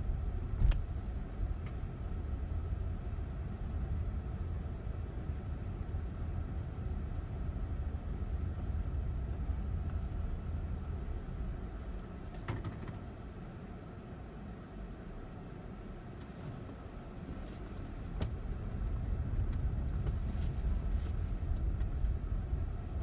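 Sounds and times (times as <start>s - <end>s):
car engine and tyres rumbling: 0.0s - 23.0s.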